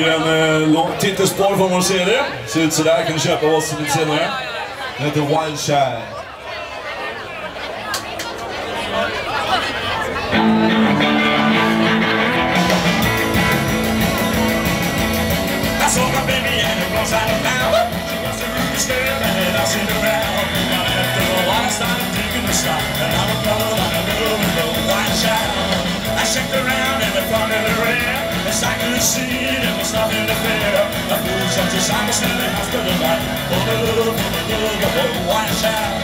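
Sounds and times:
electric guitars: 10.1s - 36.0s
steady drum beat: 12.4s - 36.0s.

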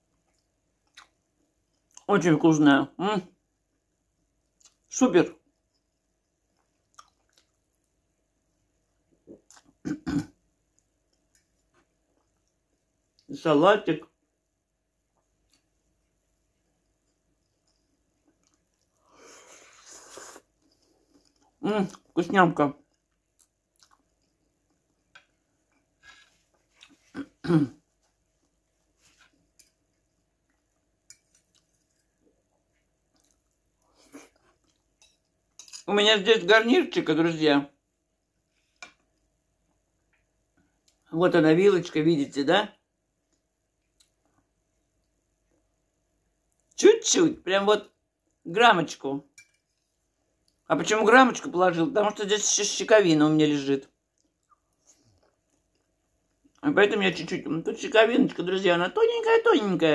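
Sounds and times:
soft chewing and mouth smacks: 0.0s - 2.1s, 3.5s - 13.3s, 14.1s - 22.2s, 22.8s - 35.8s, 38.0s - 41.1s, 42.9s - 46.8s, 48.0s - 48.4s, 49.4s - 50.7s, 53.8s - 56.6s
woman clearing her throat: 9.8s - 10.4s, 27.1s - 27.8s.

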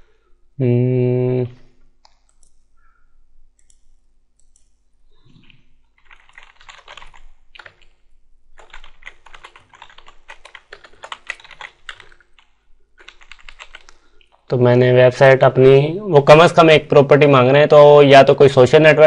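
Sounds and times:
computer keyboard typing: 2.0s - 2.6s, 5.4s - 8.0s, 8.6s - 14.4s.

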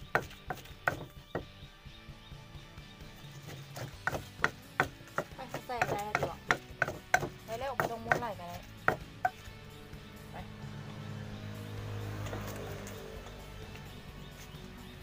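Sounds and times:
pestle pounding in mortar: 0.0s - 1.5s, 3.4s - 9.5s.

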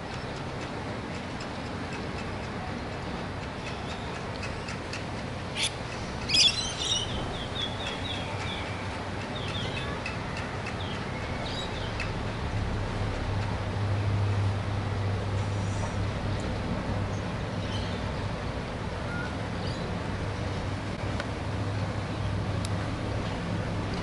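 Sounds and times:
outdoor background noise: 0.0s - 24.0s
birds chirping: 3.7s - 12.1s.

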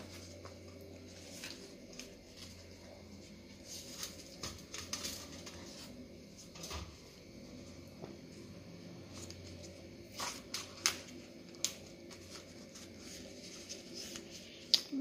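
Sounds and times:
banana leaf rustling and crackling: 0.0s - 6.0s, 9.1s - 15.0s.

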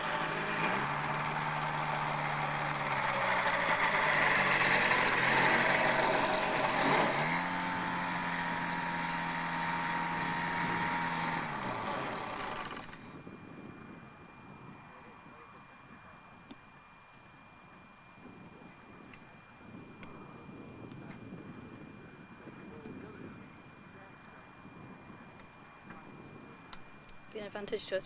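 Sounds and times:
microlight engine and propeller: 0.0s - 28.0s.

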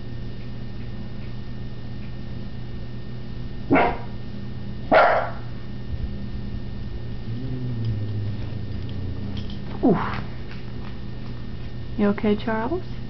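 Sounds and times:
dog barking: 3.7s - 4.2s, 4.9s - 5.5s.

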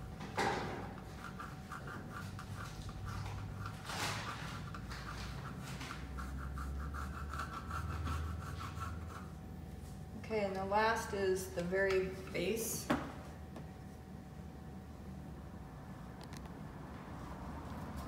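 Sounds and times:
pencil scratching on paper: 1.0s - 9.4s.

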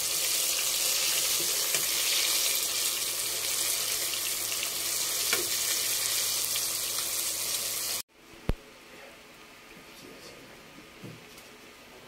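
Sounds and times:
chicken deep-frying in oil: 0.0s - 8.0s.

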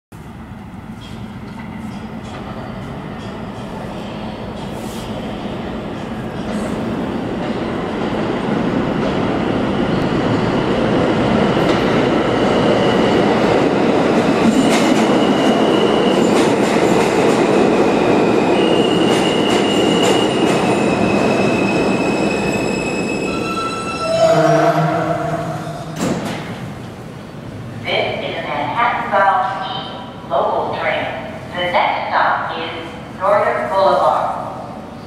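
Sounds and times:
subway train rumble: 0.1s - 35.0s
train brakes squealing: 18.6s - 26.1s
rail clicks: 25.7s - 27.0s.

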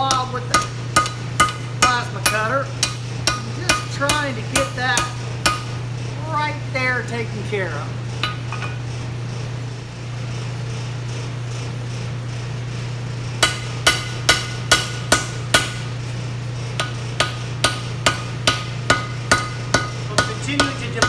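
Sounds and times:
hammer ringing on anvil: 0.0s - 5.8s, 13.4s - 15.8s, 16.8s - 21.0s
steady low hum: 0.0s - 21.0s.

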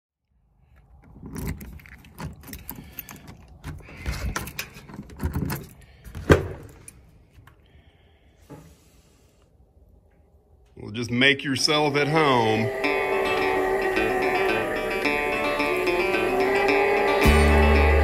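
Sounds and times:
keys jangling: 1.1s - 5.9s.

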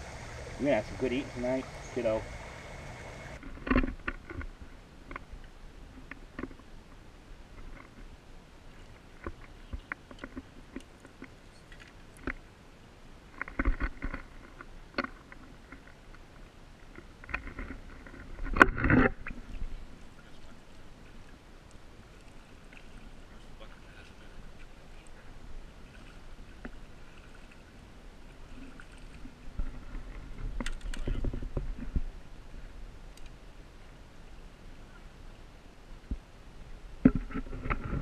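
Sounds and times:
small clicks and knocks: 3.4s - 4.5s, 9.2s - 12.4s, 13.3s - 16.2s, 16.8s - 19.4s, 29.6s - 32.0s
stream water splashing: 19.1s - 31.1s.

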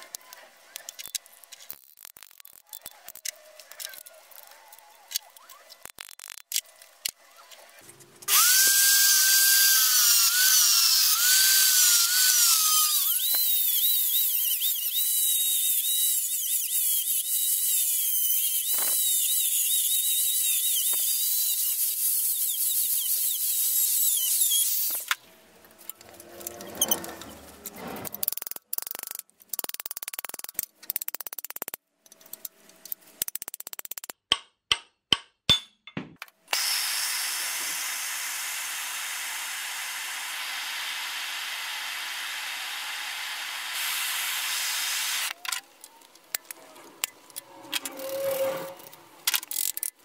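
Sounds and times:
grinder grinding steel bolt: 8.2s - 25.2s
steady hiss: 36.8s - 45.3s.

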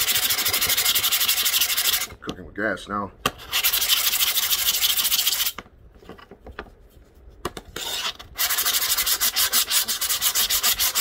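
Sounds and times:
diamond plate scraping glass: 7.8s - 8.5s.

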